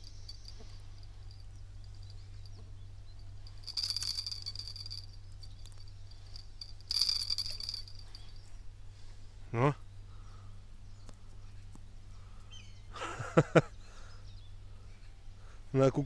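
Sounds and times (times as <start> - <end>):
short bursts of rattling: 0.0 - 8.6.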